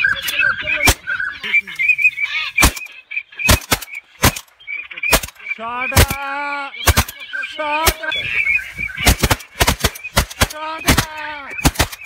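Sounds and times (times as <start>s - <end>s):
long honking bird call: 0.0s - 9.0s
short high bird calls: 0.0s - 12.0s
loud shotgun shots: 2.6s - 8.1s, 9.0s - 12.0s.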